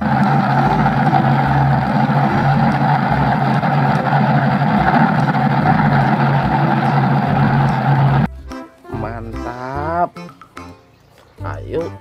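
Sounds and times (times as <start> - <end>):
heavy vehicle engine running: 0.0 - 8.3.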